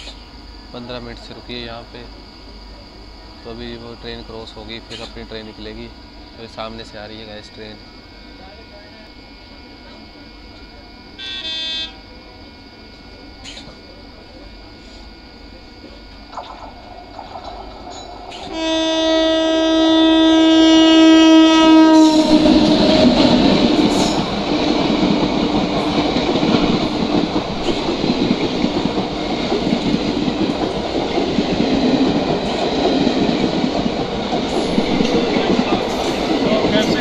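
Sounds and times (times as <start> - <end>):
train coaches rumbling past: 0.0 - 37.0
train horn blast: 11.2 - 12.1, 18.3 - 25.2.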